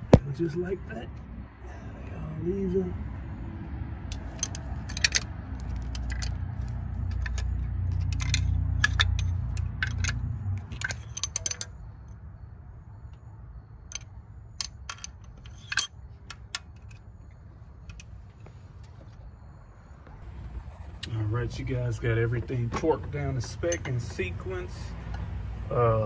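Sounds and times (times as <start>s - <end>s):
light metallic clinks: 4.1s - 11.8s.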